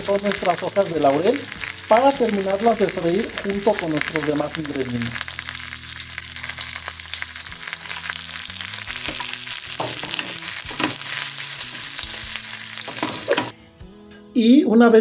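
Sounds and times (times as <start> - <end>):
oil sizzling in a pan: 0.0 - 13.5
soft background music: 0.0 - 15.0
tongs scraping and knocking pan: 8.9 - 13.5.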